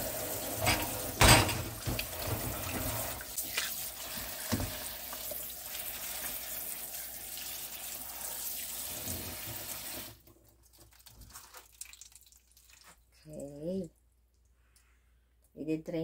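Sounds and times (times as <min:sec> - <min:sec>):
faucet spraying water: 0:00.0 - 0:10.2.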